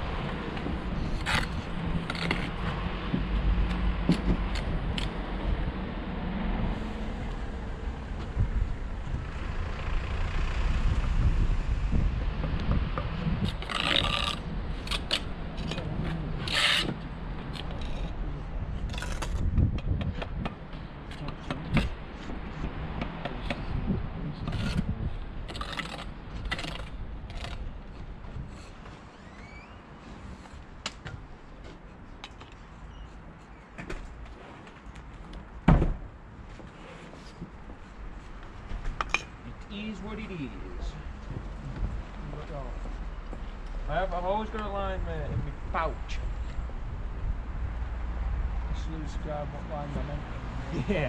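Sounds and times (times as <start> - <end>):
trowel scraping stone: 1.0 - 2.6, 13.4 - 18.2, 18.8 - 19.4, 24.4 - 24.9, 25.5 - 27.7.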